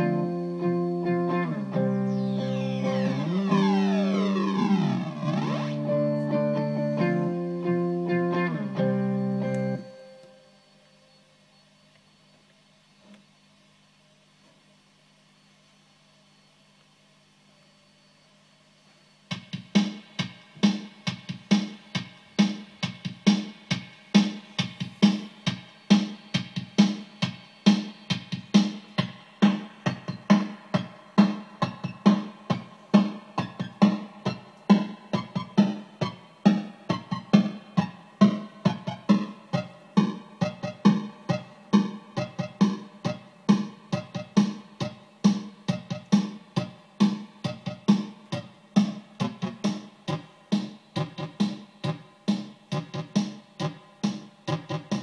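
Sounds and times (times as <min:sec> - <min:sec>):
guitar riff through effects pedal: 0:00.0 - 0:10.5
thin tones sliding down in pitch: 0:01.5 - 0:07.5.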